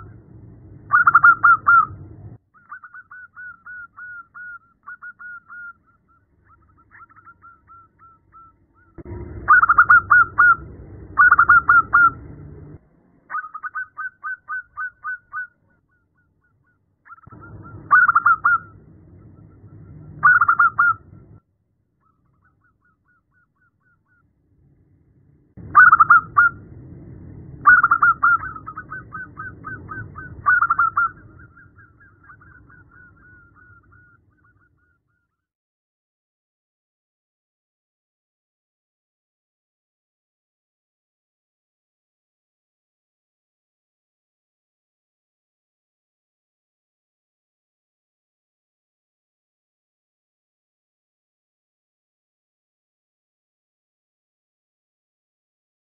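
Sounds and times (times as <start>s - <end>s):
low rumble: 0.0s - 2.4s, 5.8s - 13.4s, 17.2s - 21.4s, 24.2s - 34.5s
dove cooing: 0.9s - 2.0s, 2.6s - 12.4s, 13.3s - 16.0s, 16.6s - 21.2s, 25.7s - 26.6s, 27.6s - 35.0s.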